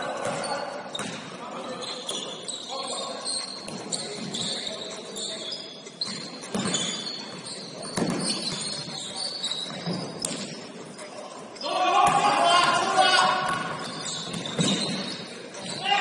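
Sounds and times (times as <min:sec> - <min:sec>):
sneakers squeaking on hardwood: 0:00.0 - 0:16.0
basketball bouncing: 0:06.1 - 0:06.9, 0:07.8 - 0:08.9, 0:13.5 - 0:15.8.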